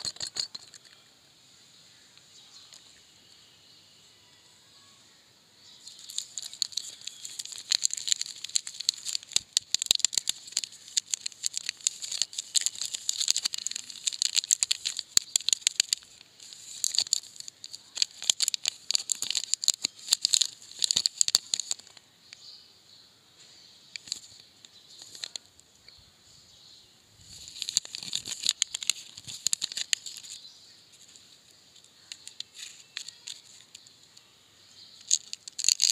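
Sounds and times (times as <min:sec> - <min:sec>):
plastic wrapper crinkling: 0:05.8 - 0:22.0, 0:24.0 - 0:25.5, 0:27.2 - 0:33.9, 0:34.8 - 0:35.9.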